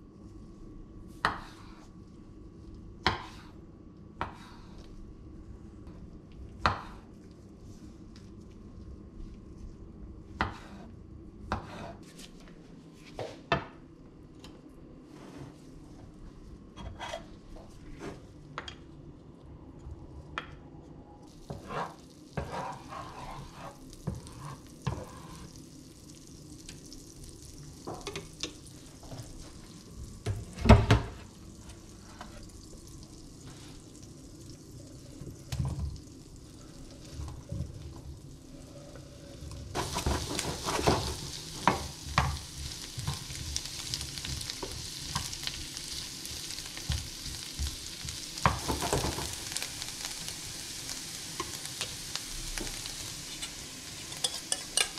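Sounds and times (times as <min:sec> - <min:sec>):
frying pan sizzling: 0:21.3 - 0:54.9.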